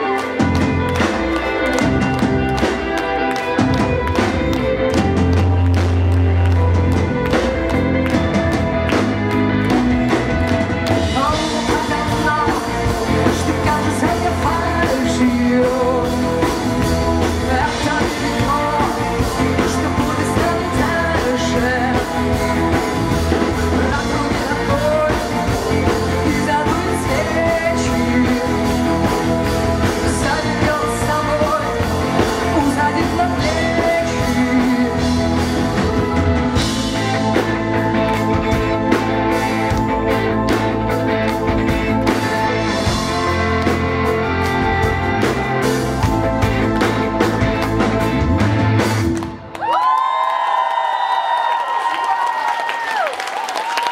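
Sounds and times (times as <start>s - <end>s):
live rock band playing: 0.0s - 49.6s
woman singing into a microphone: 11.1s - 16.3s, 17.4s - 22.4s, 23.8s - 28.8s, 30.1s - 35.3s.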